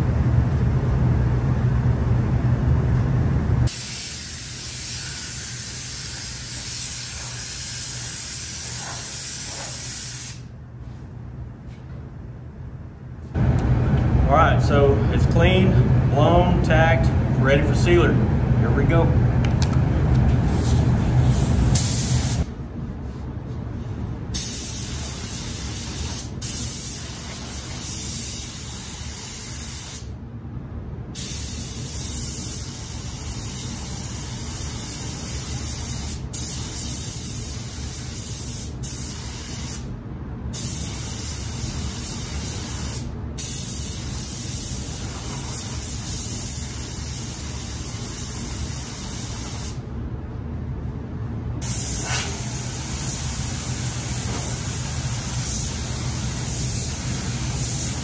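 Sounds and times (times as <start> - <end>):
steady low rumble: 0.0 - 3.8, 10.5 - 27.6, 49.4 - 58.0
paint spray gun hissing: 3.7 - 10.4, 20.6 - 22.5, 24.4 - 30.1, 40.6 - 49.8, 51.6 - 58.0.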